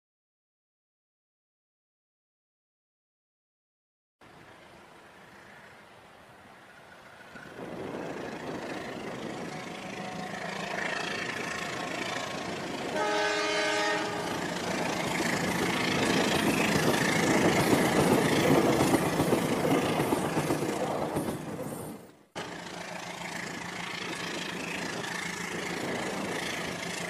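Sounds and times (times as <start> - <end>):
toy train horn: 9.5 - 11.2, 12.9 - 14.4.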